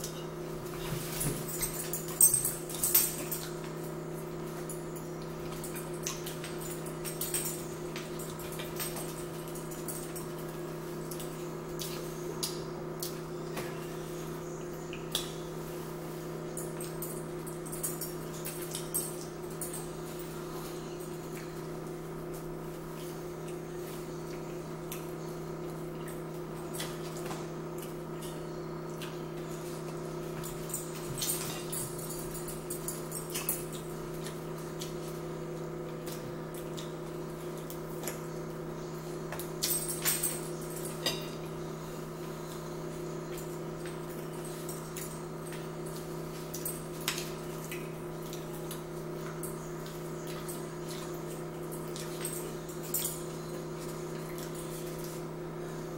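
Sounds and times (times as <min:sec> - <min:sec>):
low electrical hum: 0:00.0 - 0:55.9.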